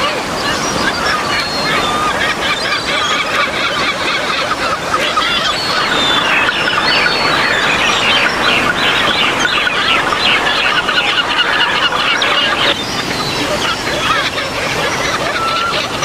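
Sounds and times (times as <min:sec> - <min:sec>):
birds chattering: 0:00.0 - 0:16.0.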